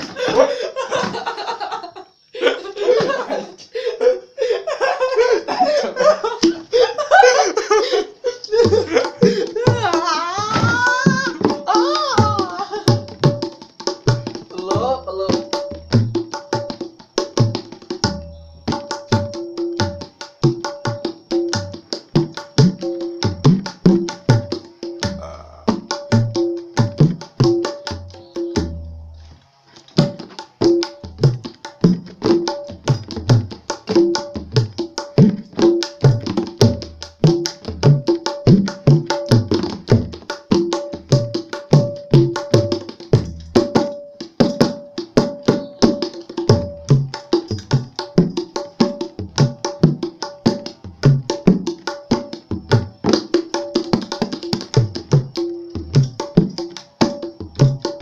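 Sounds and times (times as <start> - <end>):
people laughing: 0.0 - 11.2, 11.8 - 12.9
hand drums playing: 8.6 - 29.1, 30.0 - 58.0
voices: 9.3 - 12.8, 25.2 - 25.7.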